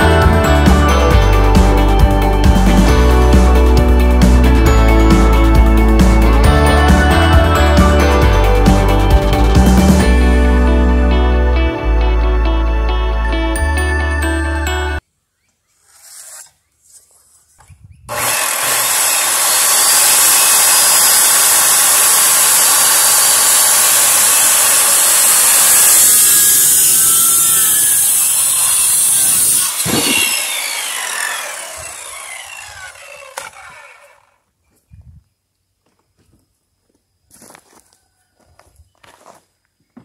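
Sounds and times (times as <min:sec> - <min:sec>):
pencil scratching: 0:15.8 - 0:17.4
circular saw cutting wood: 0:15.8 - 0:17.5, 0:18.1 - 0:34.4
saw blade winding down: 0:18.1 - 0:34.4.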